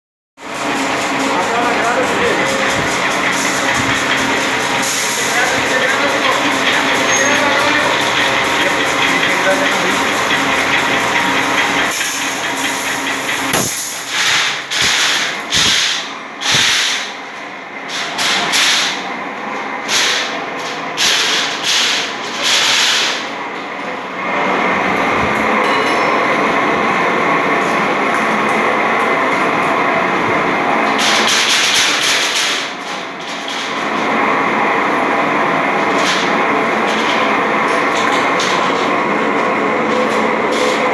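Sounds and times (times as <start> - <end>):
machine mechanical clatter: 0.5 - 17.1, 30.9 - 34.1.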